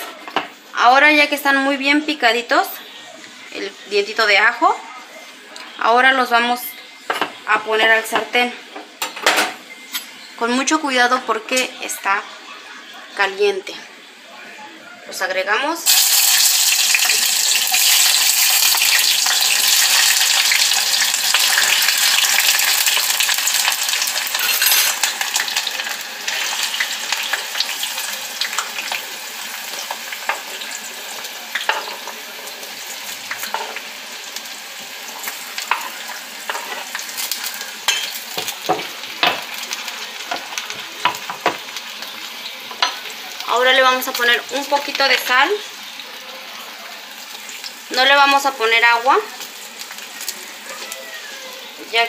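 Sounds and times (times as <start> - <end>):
vegetables sizzling in hot oil: 15.8 - 52.0.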